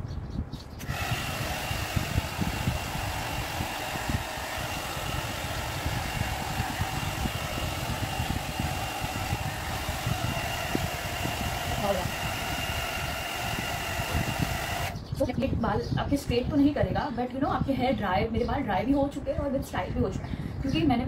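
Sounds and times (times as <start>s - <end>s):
hot-air brush blower whining: 0.8s - 15.0s.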